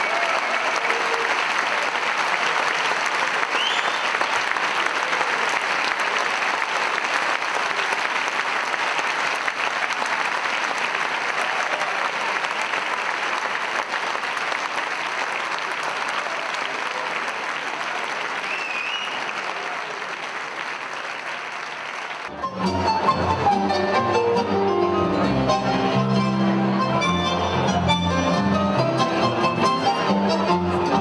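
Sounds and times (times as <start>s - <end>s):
audience applauding: 0.0s - 23.2s.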